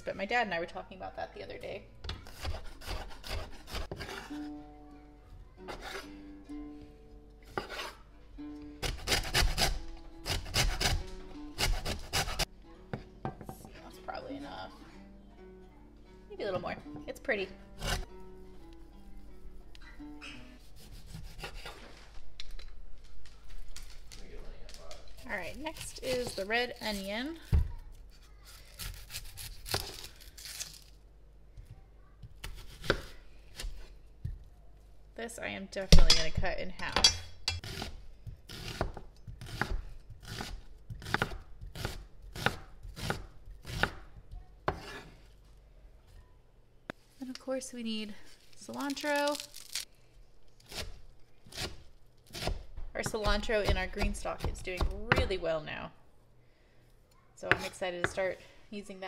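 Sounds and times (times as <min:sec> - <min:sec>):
soft background music: 0:00.0 - 0:21.6
knife slicing through onion: 0:02.2 - 0:04.5, 0:05.7 - 0:06.1, 0:07.5 - 0:08.0, 0:08.8 - 0:12.5, 0:20.6 - 0:21.8, 0:44.7 - 0:45.2.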